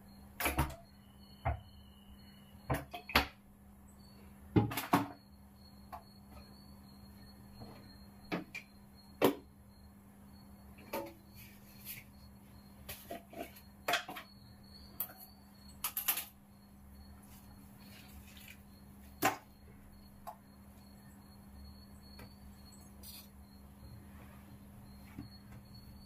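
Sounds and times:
faint steady hum: 0:00.0 - 0:26.0
kitchen utensils clicking and knocking: 0:15.8 - 0:16.3.

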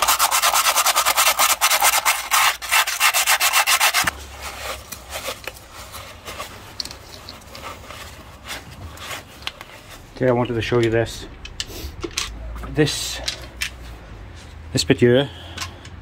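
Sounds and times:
abrasive pad scrubbing metal: 0:00.0 - 0:04.6.

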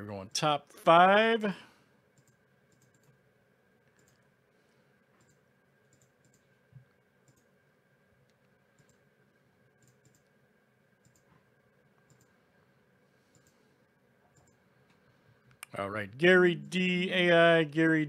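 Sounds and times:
faint steady hum: 0:00.0 - 0:18.0
computer mouse clicks: 0:02.2 - 0:03.2, 0:03.9 - 0:04.3, 0:05.1 - 0:07.5, 0:08.2 - 0:09.1, 0:09.8 - 0:10.4, 0:11.0 - 0:11.4, 0:12.0 - 0:12.4, 0:13.3 - 0:15.8.

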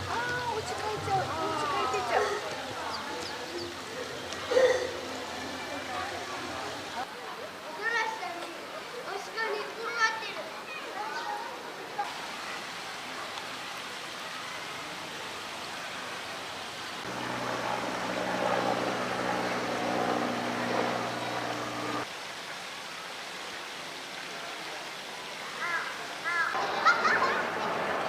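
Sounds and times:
running water: 0:00.0 - 0:28.0
steady low hum: 0:17.1 - 0:22.0.

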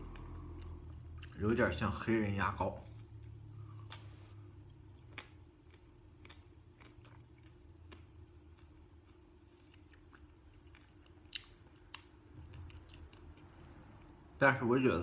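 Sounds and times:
quiet chewing: 0:02.8 - 0:14.2.

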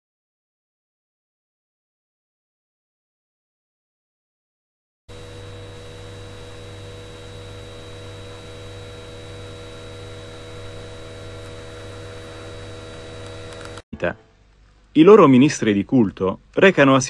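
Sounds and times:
steady held tones: 0:05.1 - 0:15.6
electrical hum with hiss: 0:05.1 - 0:17.0.

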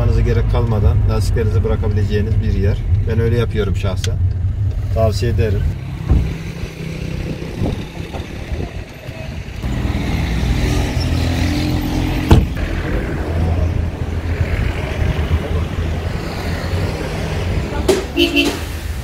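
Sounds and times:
low engine hum: 0:00.0 - 0:17.9
car door slamming: 0:06.0 - 0:06.5, 0:12.2 - 0:12.6.

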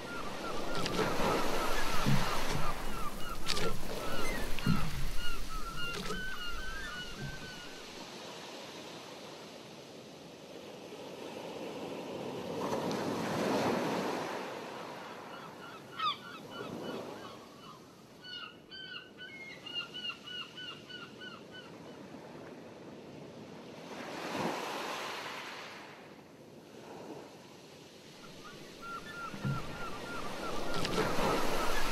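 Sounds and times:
water lapping: 0:00.0 - 0:08.0, 0:28.2 - 0:31.9.

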